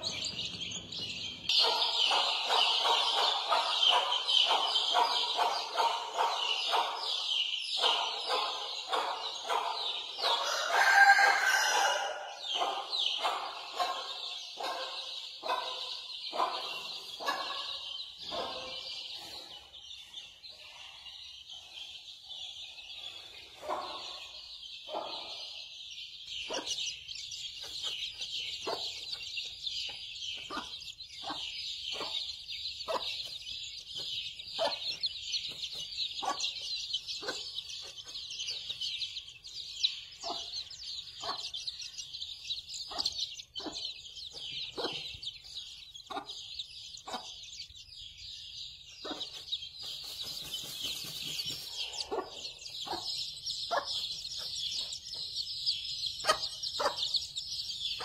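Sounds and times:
chicks peeping: 0:00.0 - 0:58.0
hen clucking: 0:34.0 - 0:38.2, 0:56.2 - 0:57.2.

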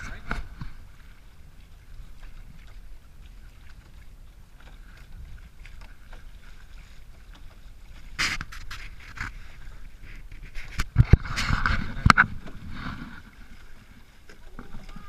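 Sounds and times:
water splashes: 0:00.0 - 0:15.0
water hissing along hull: 0:05.8 - 0:15.0
wind rumble on microphone: 0:07.8 - 0:15.0.

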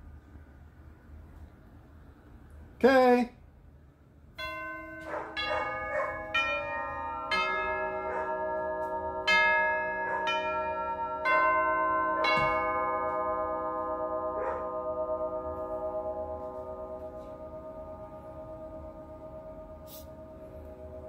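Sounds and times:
doorbell chime tubes ringing: 0:04.4 - 0:21.0.

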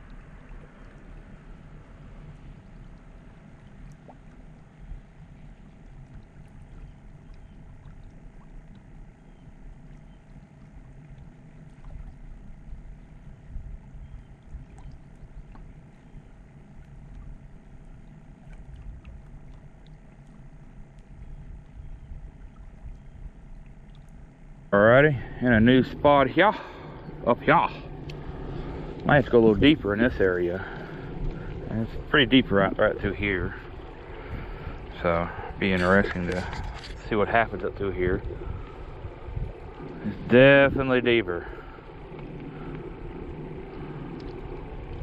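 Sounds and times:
faint ticks: 0:00.0 - 0:24.7, 0:28.0 - 0:29.1, 0:41.5 - 0:45.0
wind rumbling on microphone: 0:00.0 - 0:45.0
small waves lapping on rocks: 0:24.8 - 0:45.0.

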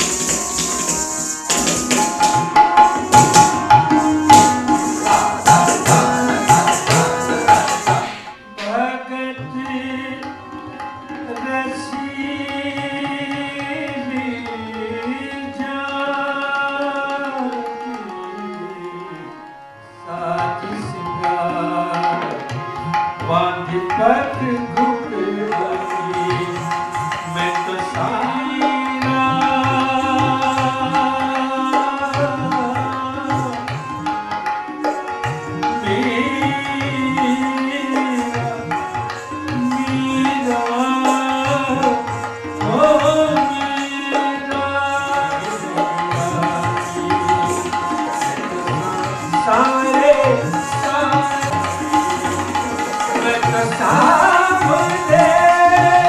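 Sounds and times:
sustained melody: 0:00.0 - 0:12.7, 0:34.6 - 0:56.0
tabla: 0:00.0 - 0:56.0.

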